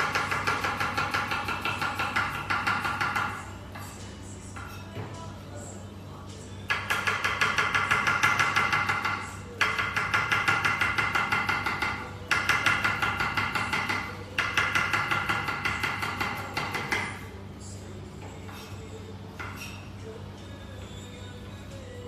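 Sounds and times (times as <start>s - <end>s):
knife chopping on wooden board: 0.0s - 3.4s, 6.7s - 17.2s.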